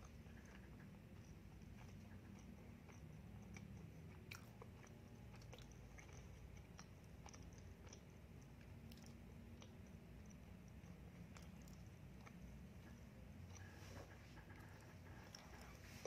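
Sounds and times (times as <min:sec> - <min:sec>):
close chewing: 0:00.0 - 0:16.0.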